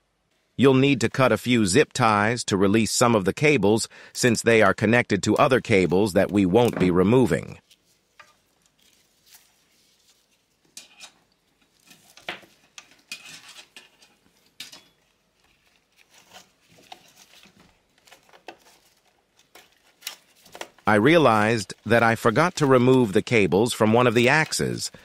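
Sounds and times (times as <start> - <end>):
rustling of cables: 5.4 - 25.0.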